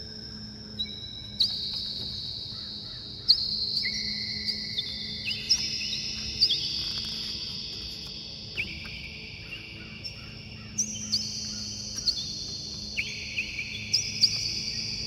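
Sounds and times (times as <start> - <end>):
high-pitched insect trills: 0.0 - 15.0
short insect chirps: 0.1 - 15.0.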